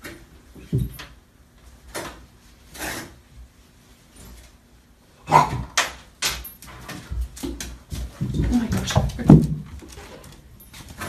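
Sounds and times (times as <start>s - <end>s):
paws knocking on bathtub: 7.1s - 10.0s.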